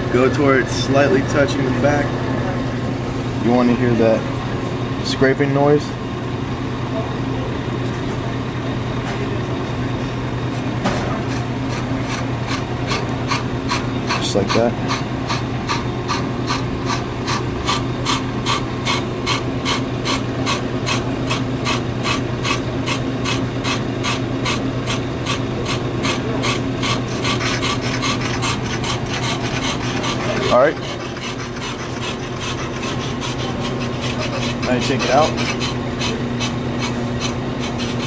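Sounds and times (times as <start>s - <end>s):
motor hum: 10.1s - 38.0s
cutting bit scraping brake rotor: 11.3s - 38.0s.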